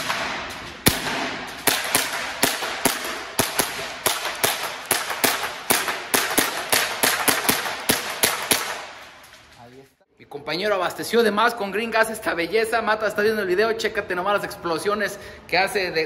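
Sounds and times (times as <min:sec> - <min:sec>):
airsoft pistol shots echoing: 0:00.0 - 0:09.2.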